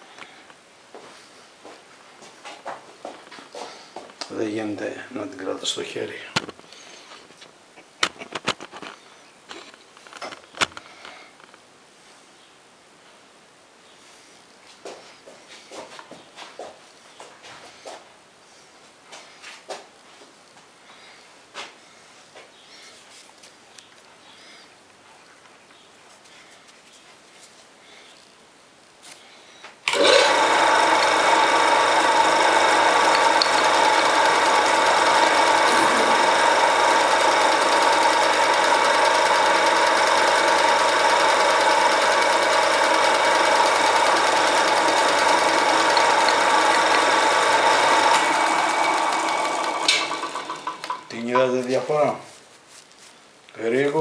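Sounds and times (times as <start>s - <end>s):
lathe motor running: 29.9s - 51.4s.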